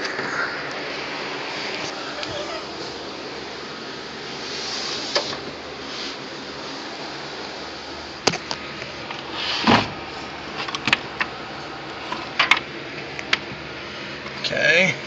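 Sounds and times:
steady hiss: 0:00.0 - 0:10.7.

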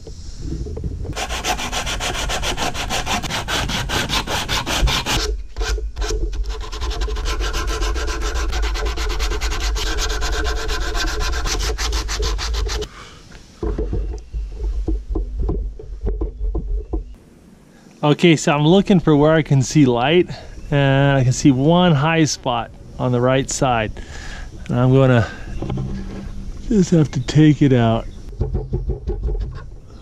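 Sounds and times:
sandpaper sanding wood: 0:01.2 - 0:05.8, 0:06.4 - 0:12.9.

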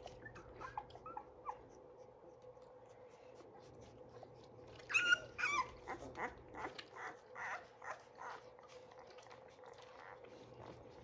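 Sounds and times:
puppies squeaking and whimpering: 0:00.0 - 0:01.8, 0:04.7 - 0:11.0.

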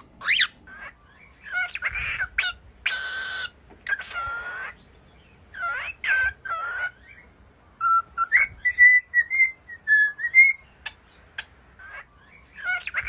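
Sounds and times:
cockatiel whistling a tune: 0:07.8 - 0:10.7.

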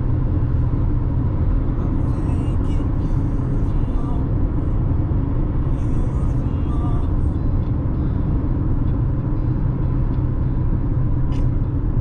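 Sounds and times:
road and engine noise in car: 0:00.0 - 0:12.0
brief click: 0:11.3 - 0:11.5.

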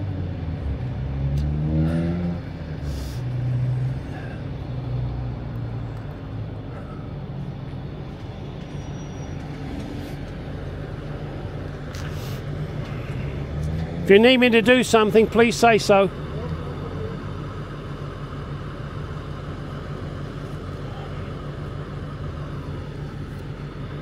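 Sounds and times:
truck engine idling: 0:02.4 - 0:24.0
short hisses: 0:02.8 - 0:03.3, 0:12.0 - 0:13.2.

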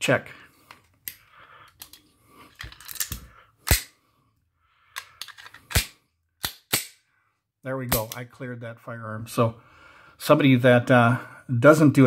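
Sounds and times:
pistol metal clicks and clacks: 0:02.6 - 0:03.9, 0:05.0 - 0:07.0.

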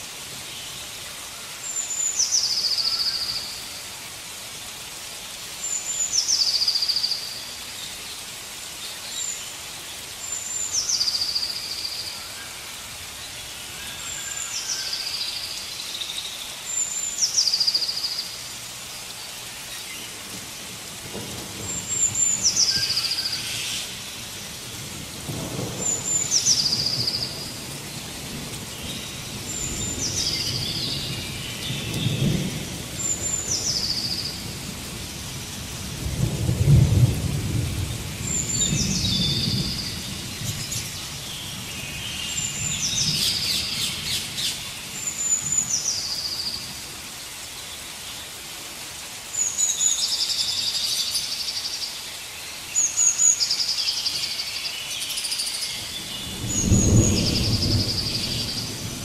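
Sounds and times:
rain hiss: 0:00.0 - 0:59.0
thunder rumbles: 0:24.5 - 0:44.6, 0:56.1 - 0:59.0.

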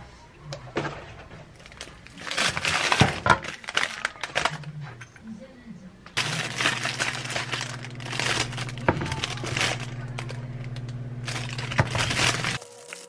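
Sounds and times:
plastic bag crinkling: 0:01.5 - 0:04.8, 0:06.2 - 0:13.0
steady low hum: 0:04.3 - 0:12.8.

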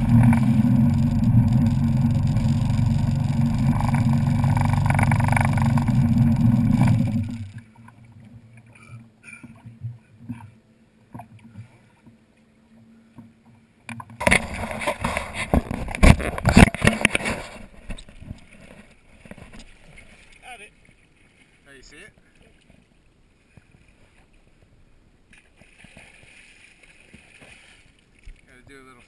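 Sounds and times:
boat engine running: 0:00.0 - 0:07.8
water around hull: 0:00.0 - 0:29.0.

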